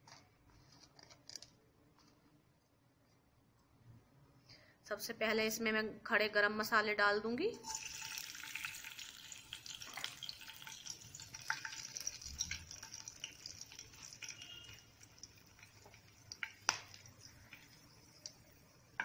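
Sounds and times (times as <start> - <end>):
spices sizzling and crackling in oil: 7.6 - 19.0.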